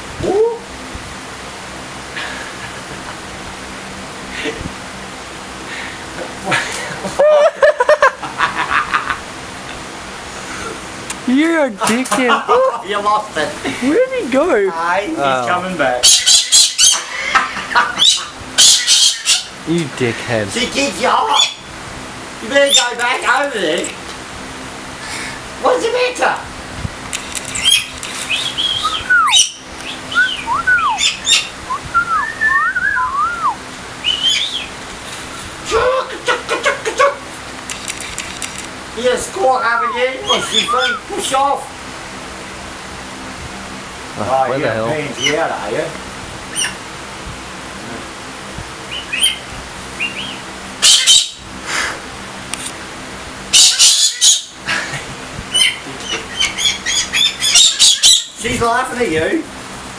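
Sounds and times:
bird harsh squawks: 0:16.0 - 0:19.6, 0:21.2 - 0:21.7, 0:27.6 - 0:34.8, 0:39.5 - 0:41.3, 0:46.5 - 0:46.8, 0:48.9 - 0:51.4, 0:53.5 - 0:54.6, 0:55.5 - 0:58.4
parrot screeching: 0:16.0 - 0:19.6, 0:21.1 - 0:21.7, 0:22.6 - 0:23.0, 0:27.6 - 0:34.7, 0:39.4 - 0:41.4, 0:46.5 - 0:46.8, 0:48.9 - 0:51.4, 0:53.5 - 0:54.6, 0:55.5 - 0:58.4
bird whistled notes: 0:27.6 - 0:34.7, 0:39.6 - 0:41.1.

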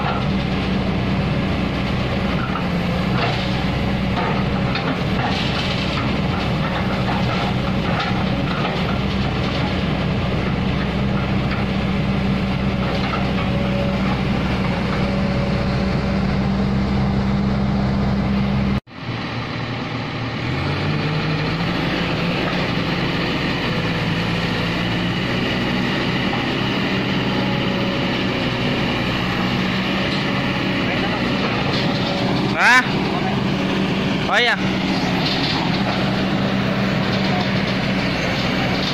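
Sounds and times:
excavator diesel engine running: 0:00.0 - 0:38.9.

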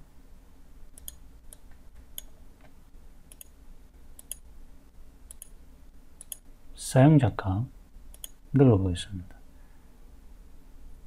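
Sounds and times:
low steady hum: 0:00.0 - 0:11.0
computer mouse clicks: 0:01.0 - 0:02.4, 0:03.3 - 0:03.6, 0:04.2 - 0:04.4, 0:05.3 - 0:05.6, 0:06.2 - 0:06.4, 0:08.1 - 0:08.4.

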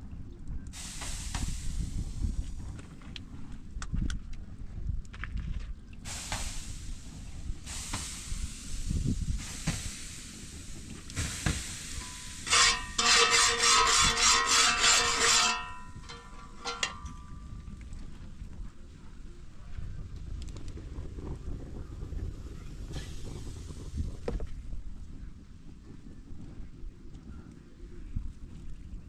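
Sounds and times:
griddle hissing and sizzling: 0:00.8 - 0:02.6, 0:06.1 - 0:17.1
batter stirred in a pot: 0:12.0 - 0:16.9
fast rasping: 0:12.0 - 0:17.0
steady ringing tone: 0:12.0 - 0:17.6.

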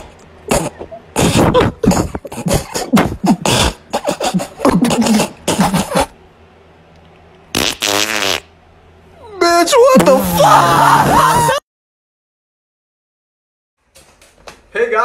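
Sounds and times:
raspy fart-like noises: 0:00.5 - 0:06.2, 0:07.5 - 0:08.6.

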